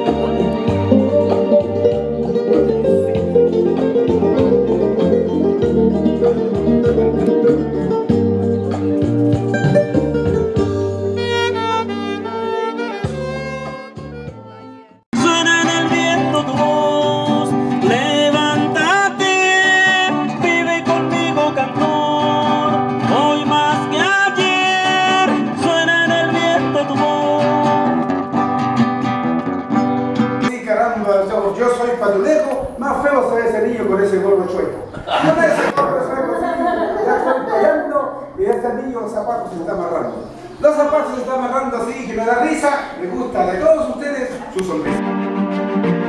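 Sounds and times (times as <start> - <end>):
acoustic guitar strumming: 0.0 - 30.6, 44.6 - 46.0
man singing: 15.1 - 28.1.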